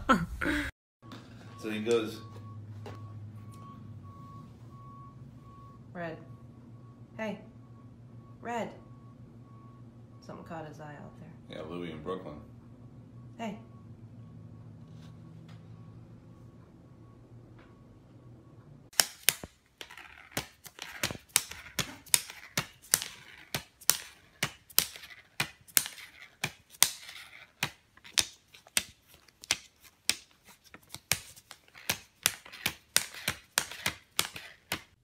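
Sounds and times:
plastic banknotes crackling: 18.9s - 35.0s.

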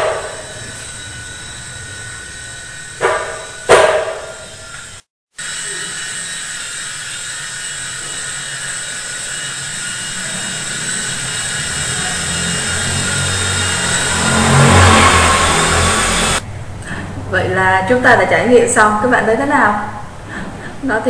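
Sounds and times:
deep rotor flutter: 0.0s - 5.0s, 5.6s - 18.2s
toy helicopter motors whining: 0.0s - 16.4s.

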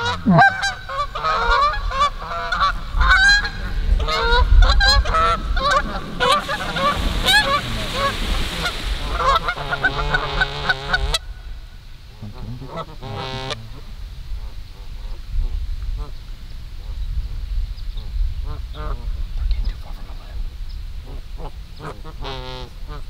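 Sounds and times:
water splashing: 0.0s - 1.4s, 2.2s - 11.5s
geese honking: 0.0s - 11.5s, 12.2s - 13.9s, 21.1s - 23.0s.

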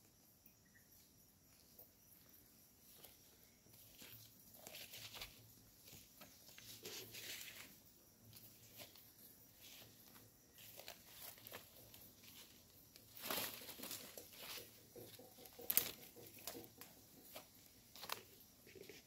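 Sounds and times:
footsteps in undergrowth: 2.2s - 19.0s
leaves and twigs crackling: 2.2s - 19.0s.

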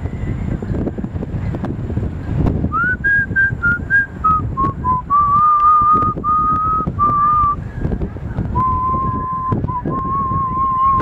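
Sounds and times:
wind on microphone: 0.0s - 11.0s
person whistling: 2.7s - 7.6s, 8.6s - 11.0s.

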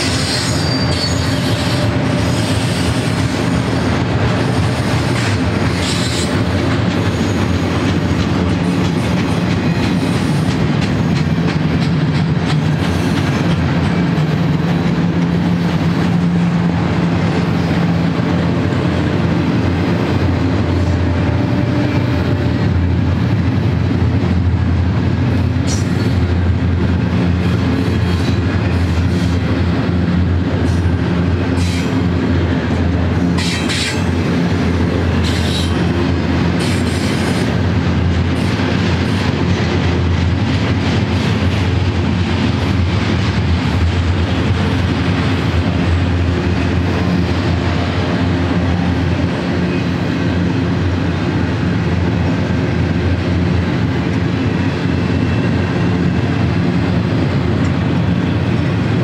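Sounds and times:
wheel screeches: 0.0s - 3.2s
train wheels rumbling on rails: 0.0s - 59.0s.

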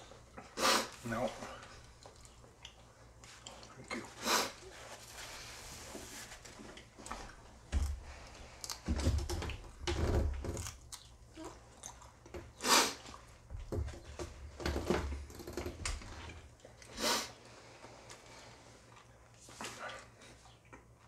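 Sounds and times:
man chewing jerky: 1.6s - 4.7s, 8.1s - 13.8s, 15.3s - 21.0s.

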